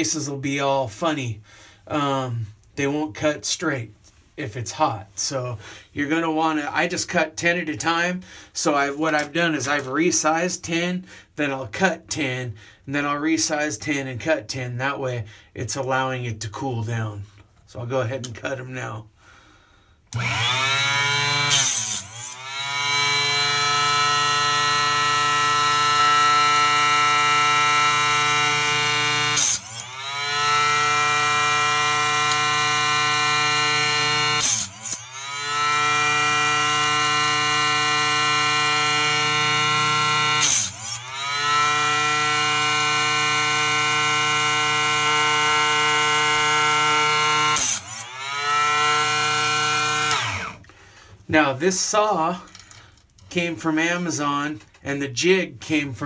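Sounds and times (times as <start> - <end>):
mini chop saw whining: 20.1 - 50.7.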